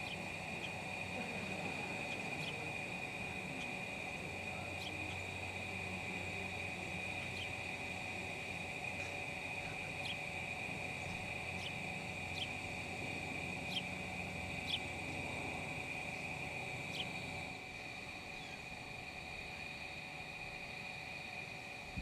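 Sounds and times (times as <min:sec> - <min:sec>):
insect chorus trilling: 0:00.0 - 0:22.0.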